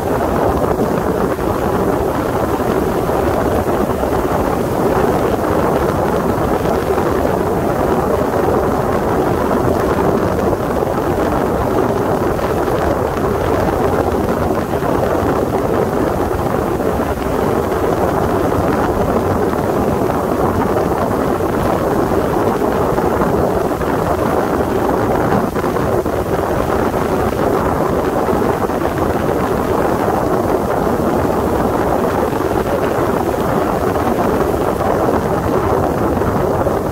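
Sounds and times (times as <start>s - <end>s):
rush of wind and water: 0.0s - 36.9s.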